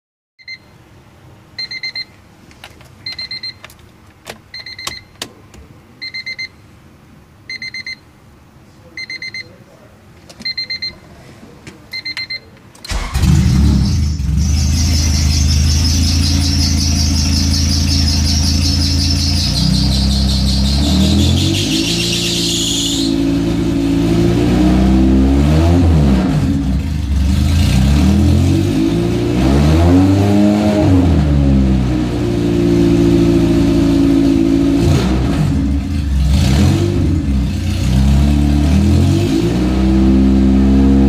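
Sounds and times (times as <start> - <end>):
dashboard warning buzzer beeps: 0.4 - 0.7, 1.6 - 2.1, 3.0 - 3.6, 4.5 - 5.2, 6.0 - 6.6, 7.5 - 8.0, 9.0 - 9.6, 10.4 - 11.0, 11.9 - 13.0
car engine cranking and idling: 11.9 - 22.0, 23.2 - 29.3, 31.6 - 39.0.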